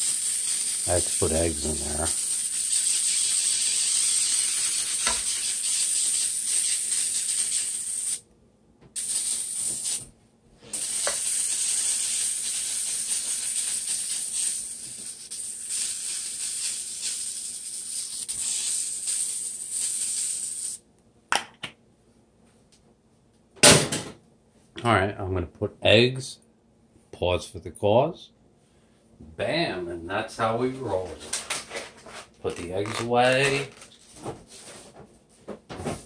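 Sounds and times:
food sizzling in a wok: 0:00.0 - 0:01.2, 0:02.2 - 0:08.2, 0:10.8 - 0:20.8.

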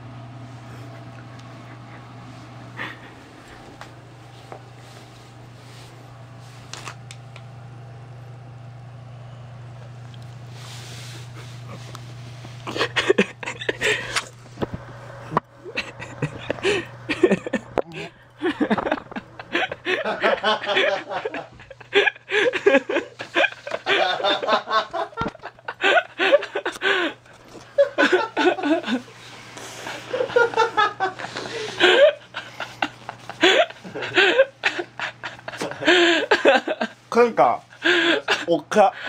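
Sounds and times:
men laughing: 0:00.6 - 0:04.0, 0:10.9 - 0:14.4, 0:15.0 - 0:39.0
men talking: 0:37.1 - 0:39.0.

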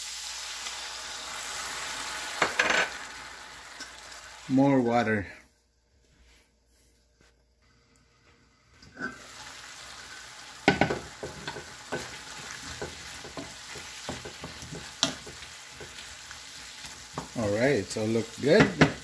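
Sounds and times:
squash sizzling in a frying pan: 0:00.0 - 0:04.9, 0:08.6 - 0:19.0
wooden spatula scraping a pan: 0:10.7 - 0:17.4.

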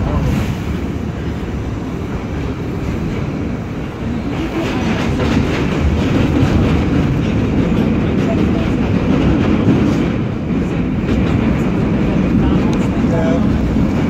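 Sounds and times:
subway car rumbling through tunnel: 0:00.0 - 0:14.0
wheels clacking over rail joints: 0:03.1 - 0:14.0.

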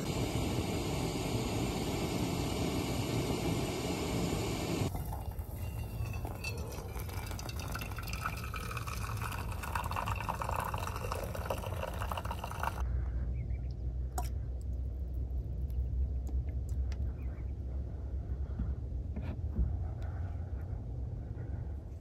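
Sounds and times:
low steady rumble: 0:00.0 - 0:22.0
water pouring into coffee filter: 0:04.9 - 0:12.8.

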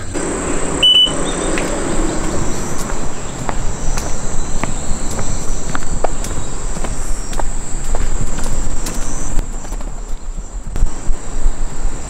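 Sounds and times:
insects shrilling: 0:00.0 - 0:09.4
footsteps: 0:00.0 - 0:11.0.

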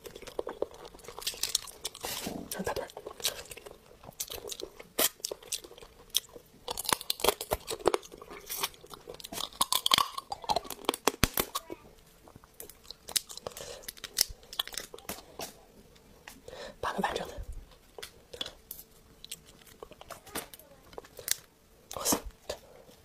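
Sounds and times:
crab shell cracking between teeth: 0:00.0 - 0:02.0, 0:02.8 - 0:11.7, 0:12.5 - 0:15.6
chewing: 0:00.0 - 0:15.6, 0:17.7 - 0:20.3.

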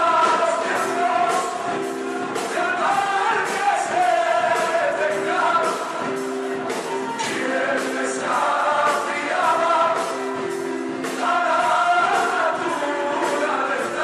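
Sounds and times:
men singing in harmony: 0:00.0 - 0:14.0
musical accompaniment with beat: 0:00.0 - 0:14.0.

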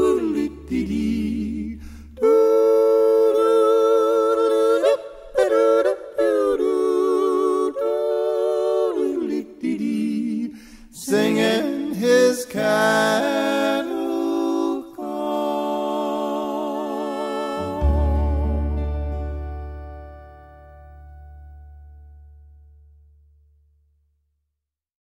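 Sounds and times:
wordless sung vocal with vibrato: 0:00.0 - 0:20.4
low bass note: 0:17.6 - 0:23.6.

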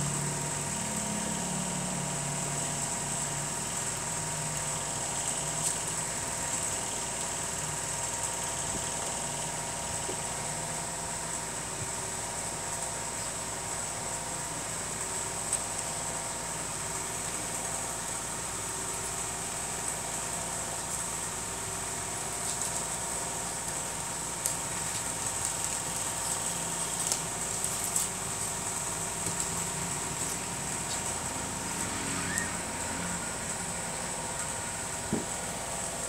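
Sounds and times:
mechanical hum and hiss: 0:00.0 - 0:36.0
puppies scuffling on floor: 0:21.9 - 0:32.5.

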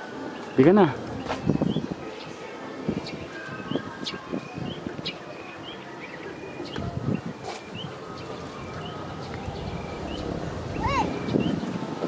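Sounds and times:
bird chirping: 0:00.5 - 0:02.4, 0:03.0 - 0:11.8
wind buffeting microphone: 0:01.0 - 0:02.1, 0:02.8 - 0:05.2, 0:06.6 - 0:12.0.

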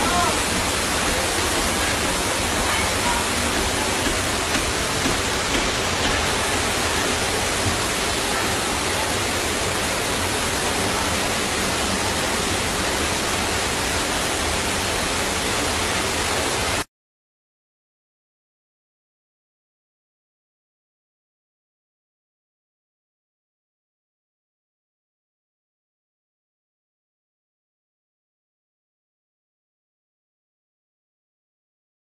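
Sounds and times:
floodwater rushing along street: 0:00.0 - 0:16.9.

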